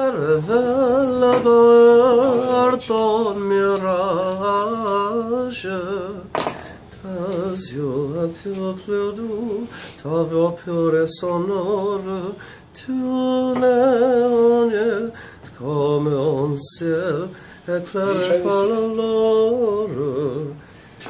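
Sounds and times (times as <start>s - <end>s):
man singing opera: 0.0s - 6.4s, 7.0s - 20.6s.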